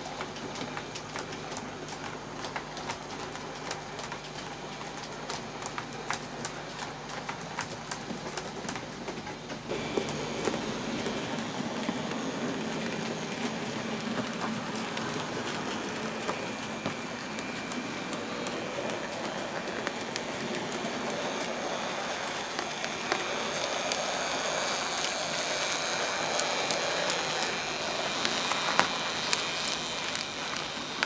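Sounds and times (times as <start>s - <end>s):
wheels clicking on rails: 0.0s - 31.0s
model train motor whine: 9.7s - 31.0s.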